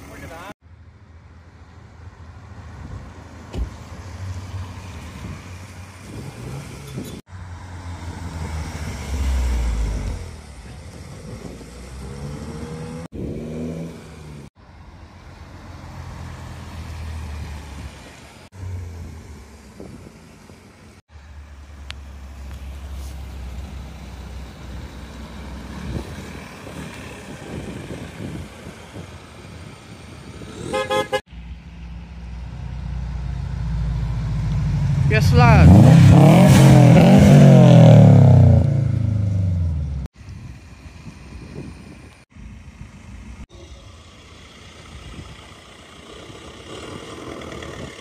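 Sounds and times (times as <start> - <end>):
cars driving slowly past: 0.0 - 48.0
engine revving: 6.1 - 14.5, 32.3 - 40.1.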